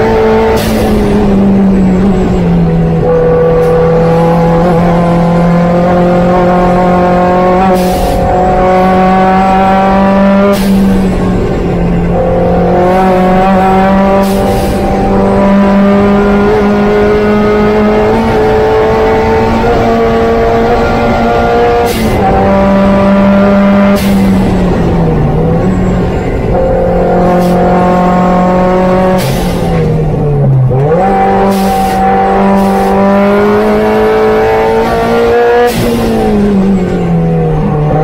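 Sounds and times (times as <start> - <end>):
car engine at full throttle: 0.0 - 38.0
road and wind noise: 0.0 - 38.0.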